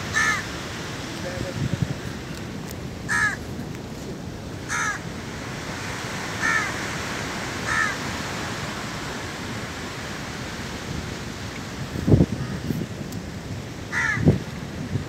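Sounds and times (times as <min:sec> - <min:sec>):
bird calling: 0:00.0 - 0:00.6, 0:03.1 - 0:03.4, 0:04.7 - 0:05.0, 0:06.4 - 0:06.8, 0:07.7 - 0:08.0.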